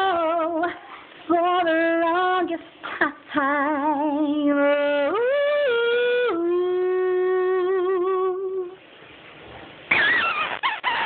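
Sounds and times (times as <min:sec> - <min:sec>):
woman singing into a cardboard tube: 0:00.0 - 0:08.8.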